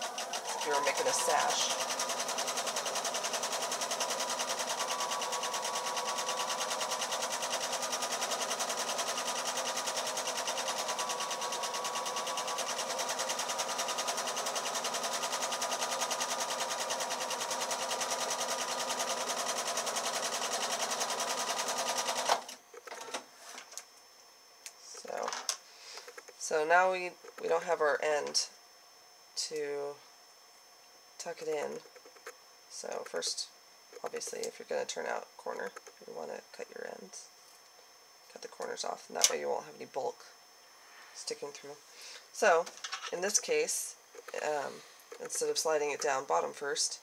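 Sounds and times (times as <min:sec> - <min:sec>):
sewing machine stitching: 0:00.0 - 0:22.5.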